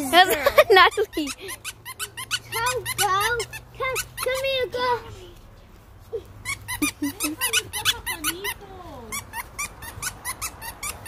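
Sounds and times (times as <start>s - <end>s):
squeaky dog toy: 0.8s - 4.9s, 6.4s - 11.0s.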